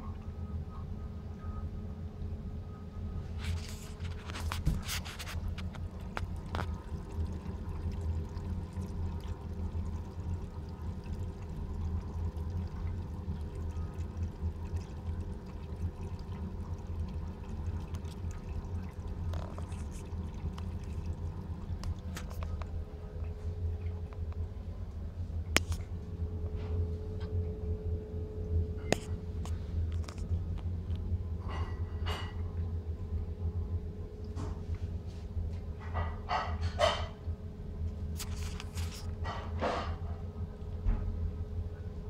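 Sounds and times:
submersible pump humming: 0:00.0 - 0:42.0
water pouring and trickling: 0:03.4 - 0:24.4, 0:38.2 - 0:39.4.

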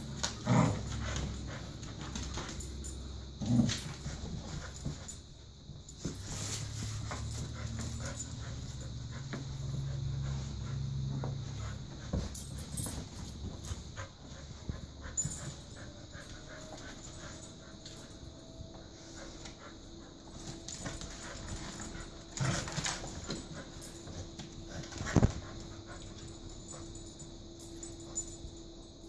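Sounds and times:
dogs scuffling: 0:00.0 - 0:28.6
dogs panting: 0:06.1 - 0:28.3.

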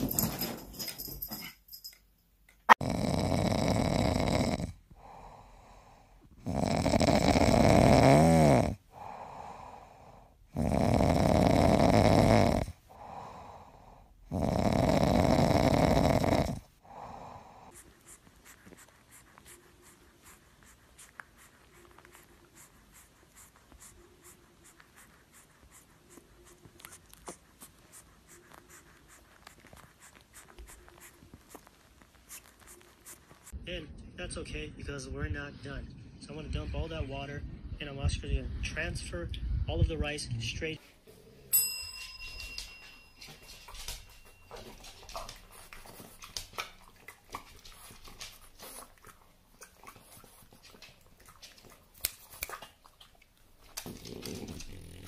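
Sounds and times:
dog snoring: 0:02.7 - 0:17.8, 0:53.8 - 0:55.0.

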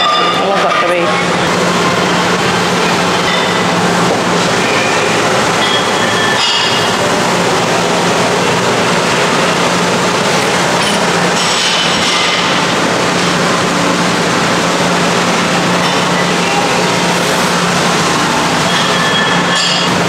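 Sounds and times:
loud steady rushing noise: 0:00.0 - 0:20.0.

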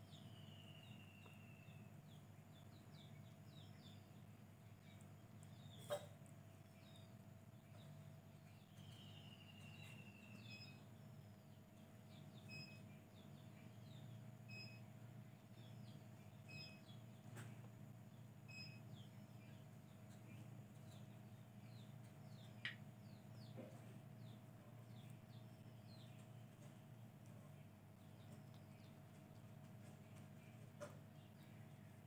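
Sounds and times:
faint high chirps: 0:00.0 - 0:17.6, 0:18.4 - 0:23.7
low steady hum: 0:00.0 - 0:32.0.

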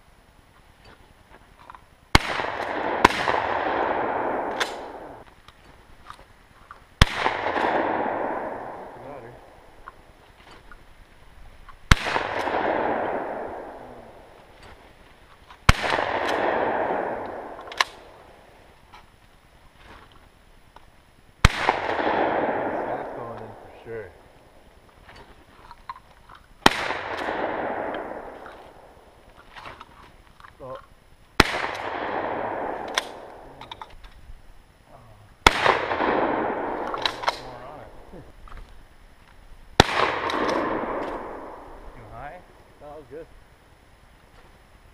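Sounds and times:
rifle gunshots with rolling echo: 0:02.1 - 0:05.2, 0:07.0 - 0:10.2, 0:11.8 - 0:14.8, 0:15.5 - 0:18.7, 0:21.4 - 0:24.8, 0:26.6 - 0:29.3, 0:31.4 - 0:33.8, 0:35.4 - 0:38.3, 0:39.8 - 0:43.2.

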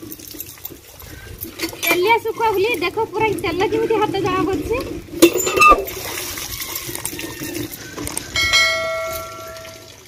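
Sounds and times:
water gushing into metal pot: 0:00.0 - 0:10.0
metallic ring: 0:05.2 - 0:06.0, 0:08.4 - 0:10.0.

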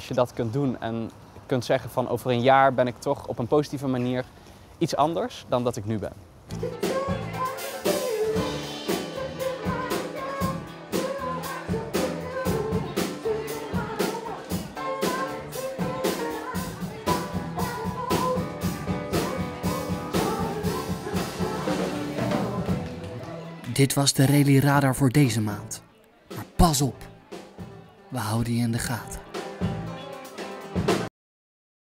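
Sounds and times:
bass guitar: 0:06.5 - 0:07.5, 0:08.3 - 0:23.7, 0:28.8 - 0:31.1
woman singing: 0:06.5 - 0:23.3
drum kit beat: 0:06.6 - 0:23.5, 0:26.3 - 0:31.1.

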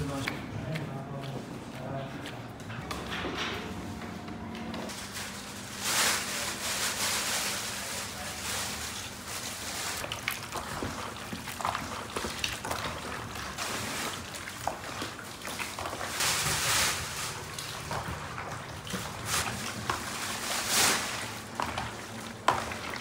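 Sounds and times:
hands squelching wet meat: 0:09.0 - 0:23.0.

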